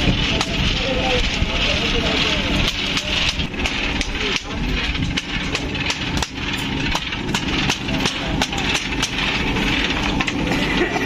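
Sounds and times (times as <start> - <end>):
engine running steadily: 0.0 - 11.0
metal clicks and knocks: 2.5 - 11.0.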